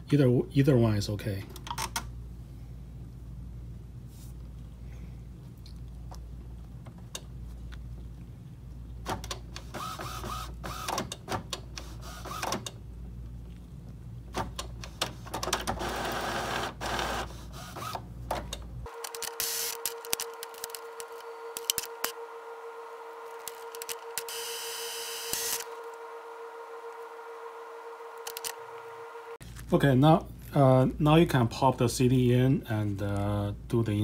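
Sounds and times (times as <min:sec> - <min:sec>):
steady low hum: 0:00.0 - 0:10.8
printer motor whirring: 0:09.6 - 0:11.1, 0:11.8 - 0:12.7, 0:15.5 - 0:18.0, 0:18.9 - 0:29.4.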